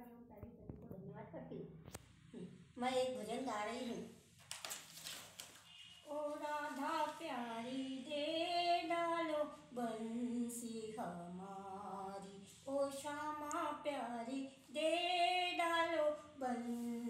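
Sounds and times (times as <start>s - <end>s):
woman singing unaccompanied: 6.0s - 17.0s.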